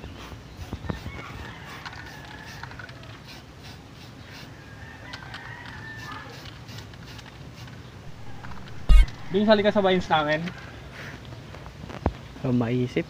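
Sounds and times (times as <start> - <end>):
rooster crowing: 1.1 - 3.0, 4.6 - 6.4, 8.1 - 10.9
footsteps on dry ground: 8.1 - 10.7.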